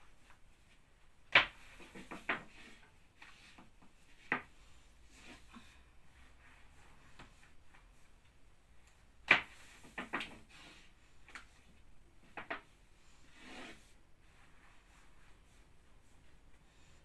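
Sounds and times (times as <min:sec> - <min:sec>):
soft rubbing of dough: 0:00.0 - 0:17.0.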